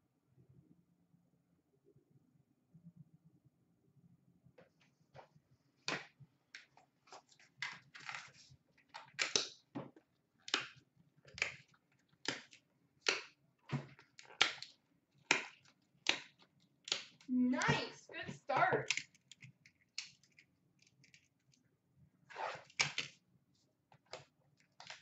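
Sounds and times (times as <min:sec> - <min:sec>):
trading cards flipping: 0:05.9 - 0:09.6, 0:10.5 - 0:21.6, 0:22.4 - 0:23.2, 0:24.0 - 0:25.0.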